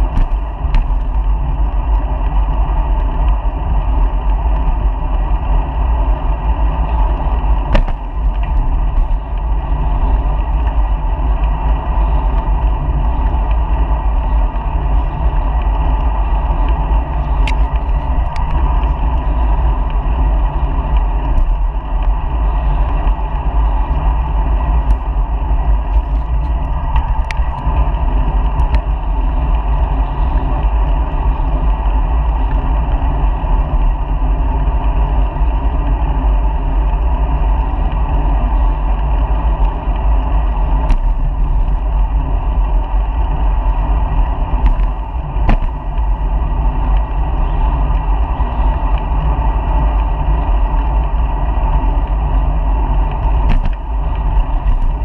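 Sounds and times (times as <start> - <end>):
road noise: 0.0 - 55.0
wind buffeting microphone: 0.0 - 55.0
sharp clicks and rattles: 51.8 - 55.0.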